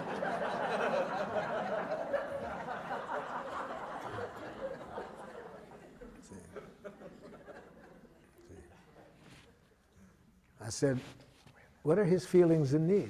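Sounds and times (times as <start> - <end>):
audience laughing: 0.0 - 9.0.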